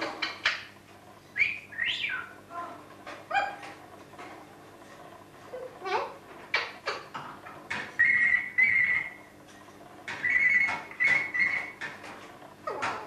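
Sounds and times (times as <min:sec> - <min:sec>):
parrot imitating ringing telephone: 0:10.2 - 0:11.8.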